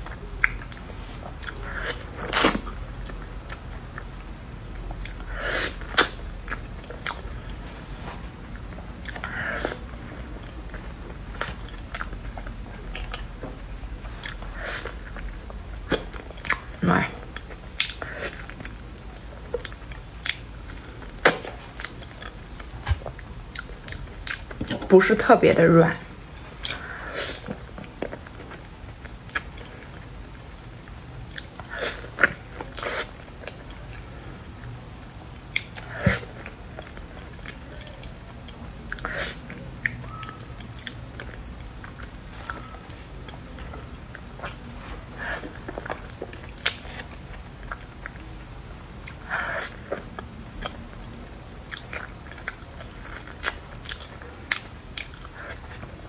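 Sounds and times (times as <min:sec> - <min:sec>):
wet chewing and lip smacks: 0:35.4 - 0:44.7, 0:49.0 - 0:56.0.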